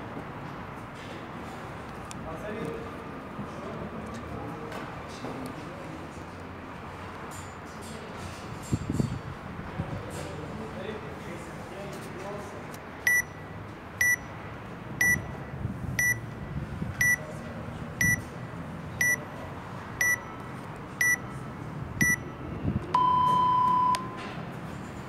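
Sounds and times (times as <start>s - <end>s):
long low timer beep: 13.1s - 13.4s, 14.0s - 14.3s, 15.0s - 16.3s, 17.0s - 17.2s, 18.0s - 18.2s, 19.0s - 19.2s, 20.0s - 20.4s, 21.0s - 21.3s, 22.0s - 22.3s, 23.0s - 24.2s
short high timer beeps: 13.1s - 13.4s, 14.0s - 14.3s, 15.0s - 15.4s, 16.0s - 16.2s, 18.0s - 18.2s, 20.0s - 20.4s, 21.0s - 21.3s, 22.0s - 22.3s, 23.0s - 24.2s.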